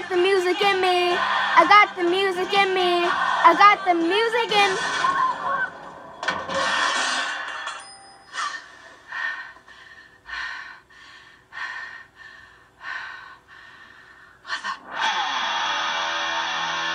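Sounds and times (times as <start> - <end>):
music: 0.0 - 8.4.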